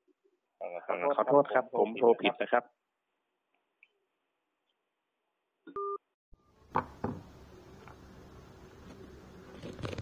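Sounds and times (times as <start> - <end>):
two-tone smartphone beep: 5.7 - 6.0.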